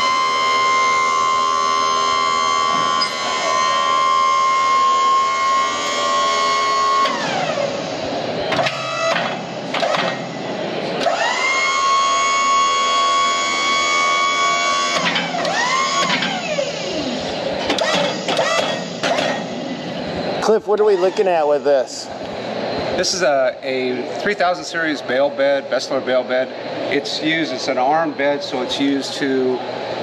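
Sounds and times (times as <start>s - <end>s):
hydraulic pump motor whining: 0.0s - 23.0s.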